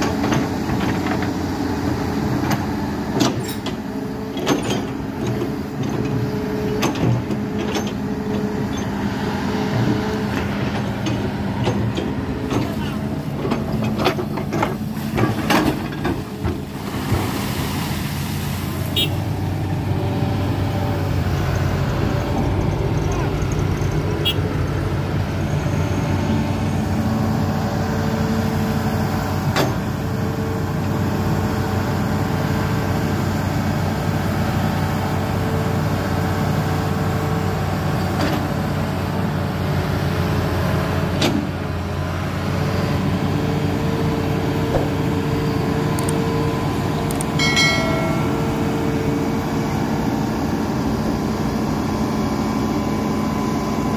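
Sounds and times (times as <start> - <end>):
excavator diesel engine running: 0.0 - 53.9.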